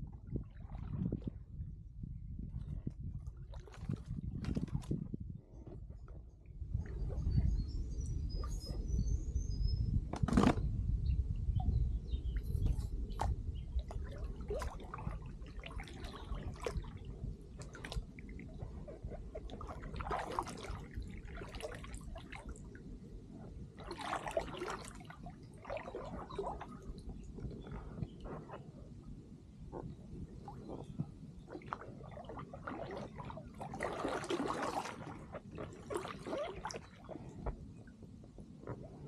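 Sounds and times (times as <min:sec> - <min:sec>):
kayak paddle splashing water: 0:13.1 - 0:22.6, 0:23.8 - 0:28.6, 0:30.5 - 0:37.6.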